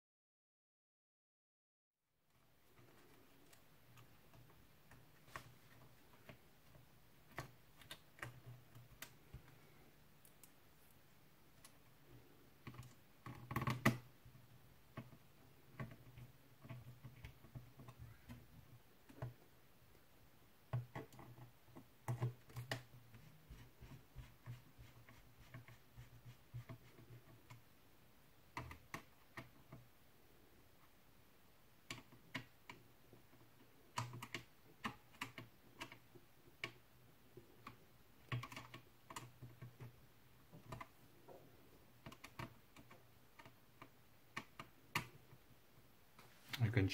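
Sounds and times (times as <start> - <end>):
fingers and screwdriver clicking on plastic: 2.8 - 9.6, 12.6 - 19.5, 20.6 - 27.7, 28.5 - 29.9, 31.8 - 41.2, 41.9 - 45.4.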